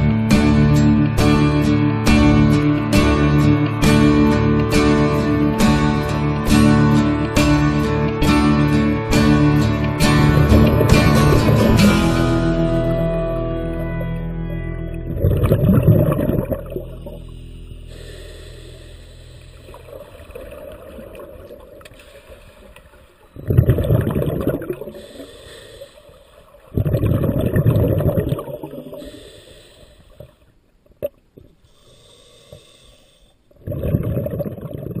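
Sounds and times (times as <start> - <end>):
gurgling exhaled bubbles: 10.0 - 12.5, 15.0 - 17.4, 23.3 - 25.2, 26.7 - 29.1, 33.6 - 35.0
hissing regulator inhalations: 17.0 - 20.3, 21.9 - 23.5, 24.8 - 26.7, 28.8 - 30.5, 31.6 - 33.6.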